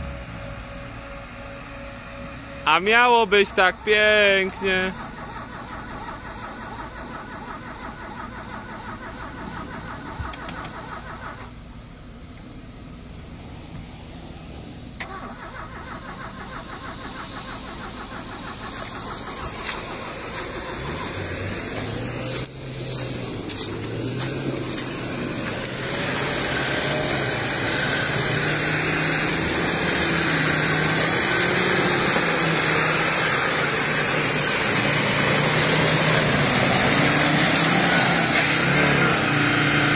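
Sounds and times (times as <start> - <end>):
engine revving through mud: 17.5 - 39.9
mud and water thrown off wheels: 17.8 - 25.8.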